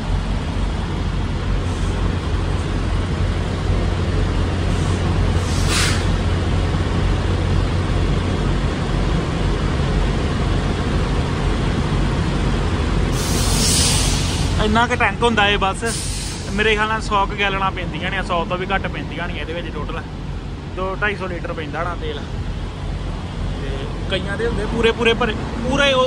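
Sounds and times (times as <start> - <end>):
fuel rushing into tank: 0.0 - 14.9
low engine hum: 0.0 - 26.0
short hiss: 4.7 - 6.2, 13.1 - 14.6, 15.9 - 16.6.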